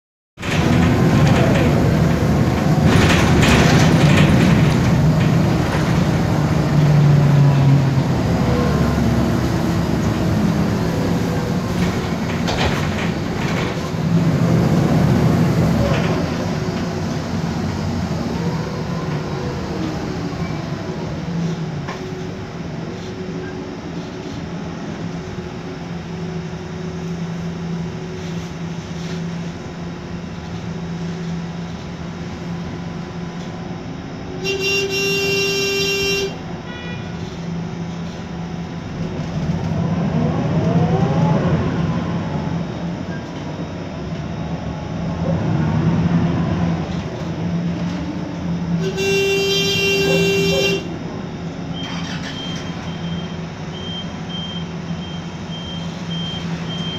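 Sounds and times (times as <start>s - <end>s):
bus engine hum: 0.4s - 56.9s
bus horn blasts: 34.4s - 37.4s, 48.7s - 51.0s
gearbox whine: 49.8s - 56.9s.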